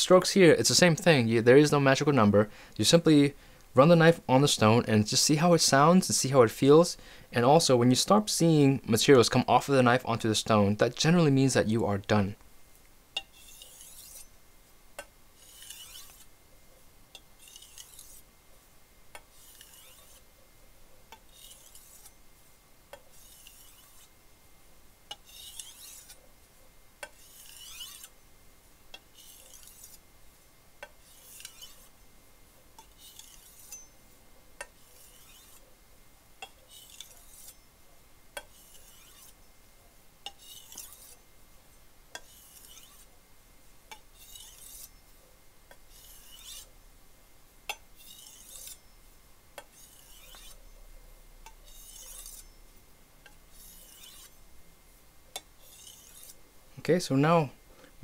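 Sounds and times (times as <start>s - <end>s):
knife scraping on whetstone: 13.2s - 14.4s, 15.4s - 16.3s, 17.2s - 18.3s, 19.2s - 20.3s, 21.2s - 22.2s, 23.0s - 24.1s, 25.1s - 26.3s, 27.0s - 28.2s, 29.0s - 30.0s, 30.8s - 32.0s, 32.8s - 34.0s, 34.6s - 35.7s, 36.4s - 37.6s, 38.4s - 39.4s, 40.2s - 41.2s, 42.1s - 43.1s, 43.9s - 45.0s, 45.7s - 46.7s, 47.7s - 49.0s, 49.6s - 50.7s, 51.5s - 52.6s, 53.5s - 54.4s, 55.4s - 56.4s.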